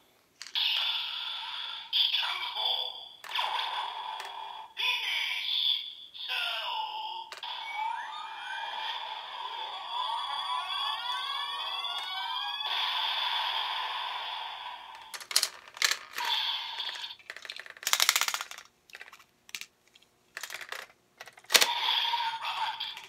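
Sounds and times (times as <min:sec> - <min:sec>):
electronic toy sound effect: 0:07.2 - 0:18.4, 0:21.5 - 0:23.0
plastic clicks and rattles: 0:15.1 - 0:16.3, 0:16.9 - 0:21.7.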